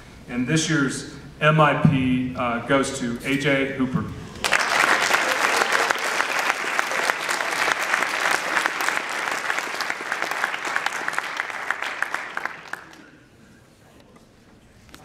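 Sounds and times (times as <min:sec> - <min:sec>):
audience applauding: 0:04.4 - 0:13.3.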